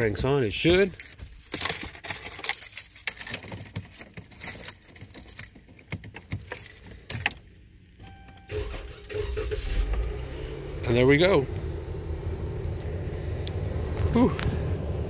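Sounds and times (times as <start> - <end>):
metallic jangling: 0.7 - 7.6.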